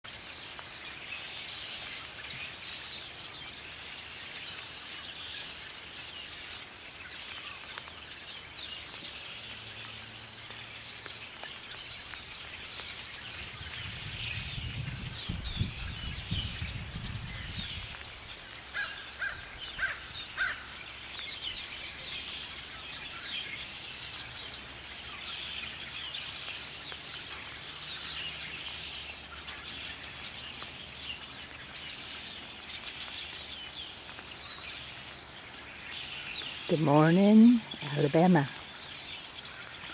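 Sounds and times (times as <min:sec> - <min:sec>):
flock of birds chirping: 0:00.0 - 0:39.9
louder lower bird calls: 0:18.7 - 0:20.9.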